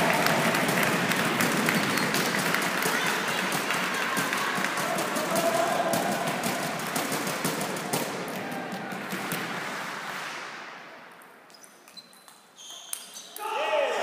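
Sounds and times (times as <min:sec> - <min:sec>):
spectators clapping: 0:00.0 - 0:09.7.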